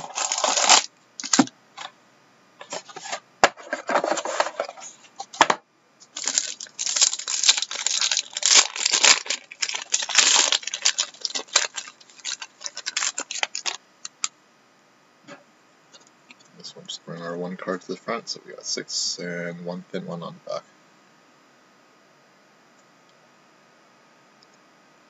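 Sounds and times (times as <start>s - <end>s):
plastic wrapping crinkling and tearing: 0.0s - 1.5s, 6.1s - 14.2s.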